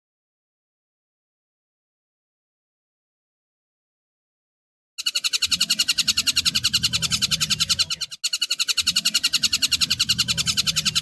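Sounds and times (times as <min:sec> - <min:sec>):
kingfisher chattering: 0:05.0 - 0:11.0.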